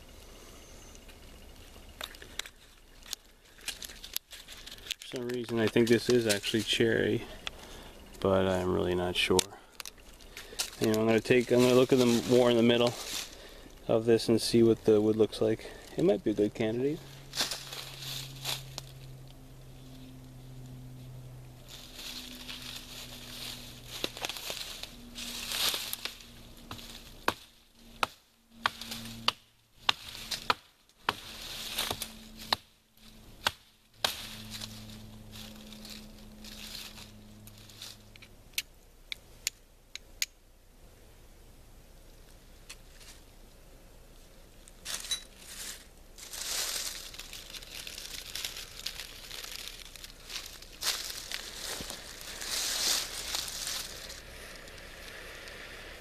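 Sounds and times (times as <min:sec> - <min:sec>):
dry leaves rustling: 0:00.0 - 0:38.3, 0:42.2 - 0:56.0
rotten wood cracking and snapping: 0:02.0 - 0:06.7, 0:09.3 - 0:13.6, 0:21.8 - 0:32.6, 0:46.2 - 0:54.8.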